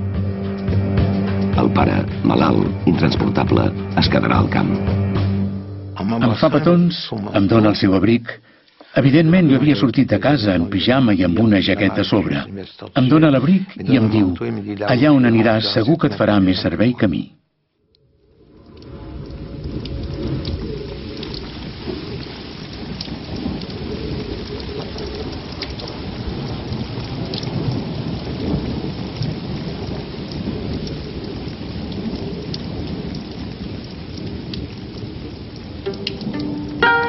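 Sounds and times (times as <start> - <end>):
steady rain: 0.0 - 37.0
low rumble of thunder: 18.3 - 36.8
sharp ticks of drops: 35.8 - 37.0.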